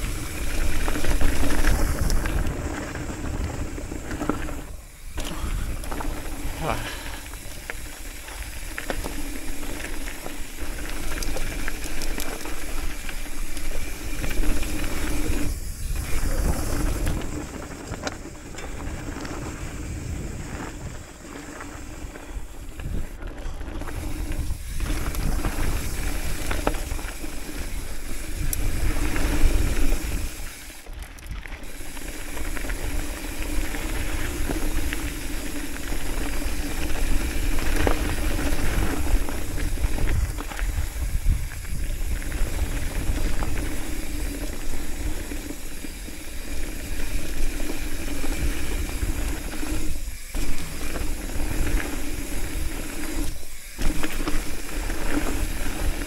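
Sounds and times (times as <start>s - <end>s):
wind rushing on microphone: 0.0s - 6.8s, 13.8s - 21.2s, 32.9s - 45.1s
bike rattling and clicking: 0.0s - 56.0s
tyres rolling over gravel: 0.0s - 56.0s.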